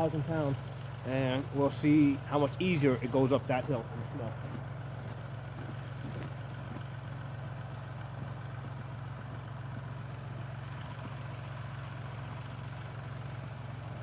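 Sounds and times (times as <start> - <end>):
tractor diesel engine idling: 0.0 - 14.0.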